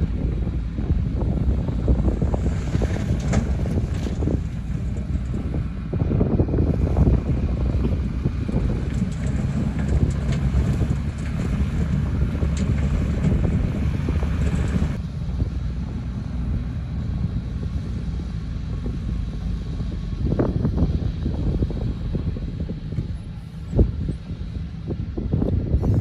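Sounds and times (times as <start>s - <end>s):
diesel truck rumble: 0.0s - 26.0s
wind buffeting microphone: 0.0s - 26.0s.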